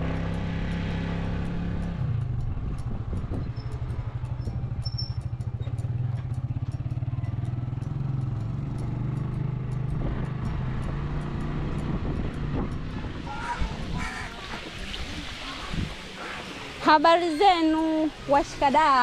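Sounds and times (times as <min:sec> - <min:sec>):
small engine droning: 0:00.0 - 0:13.8.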